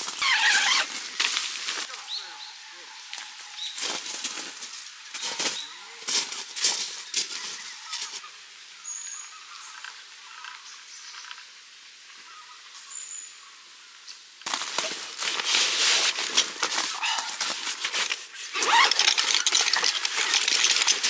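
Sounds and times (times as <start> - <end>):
bag rustling on gravel: 14.5 - 21.0
footsteps on gravel: 14.5 - 21.0.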